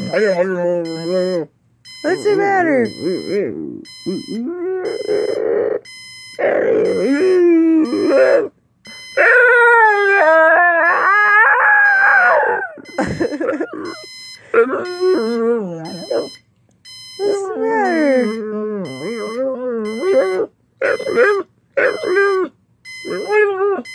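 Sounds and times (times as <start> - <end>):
dog howling and whining: 0.0 - 1.2, 3.5 - 8.5, 9.2 - 12.9, 13.7 - 16.3, 17.2 - 23.9
alarm clock beeping: 0.0 - 9.4, 10.8 - 23.9.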